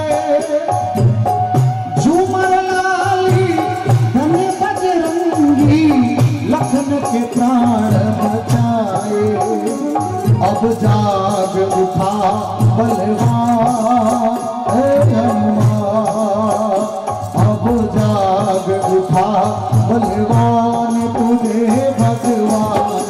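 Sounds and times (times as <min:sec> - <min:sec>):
hand drum rhythm: 0:00.0 - 0:23.0
person singing: 0:00.0 - 0:23.0.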